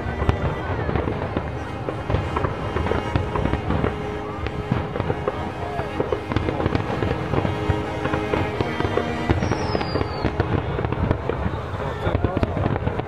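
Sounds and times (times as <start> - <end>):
fireworks bangs and crackles: 0.0 - 13.0
falling whistle: 9.3 - 10.4.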